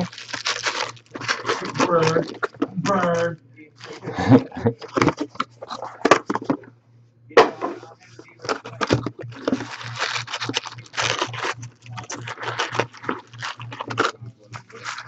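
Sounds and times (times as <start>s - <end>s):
foil wrappers crinkling and tearing: 0.0s - 3.2s, 8.4s - 15.0s
low steady hum: 0.0s - 15.0s.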